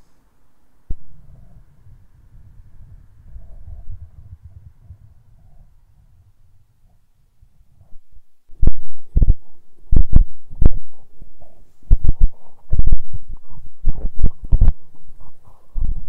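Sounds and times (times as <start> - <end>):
wind buffeting microphone: 1.2 - 7.0, 11.9 - 16.0.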